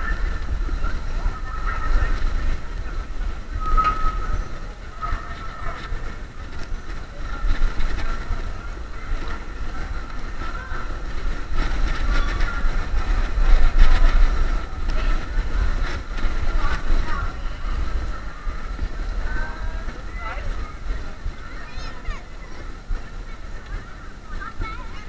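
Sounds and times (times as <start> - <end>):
faint high whine: 0.0 - 9.2
wheels rumbling over road: 0.0 - 25.0
wind buffeting microphone: 0.0 - 25.0.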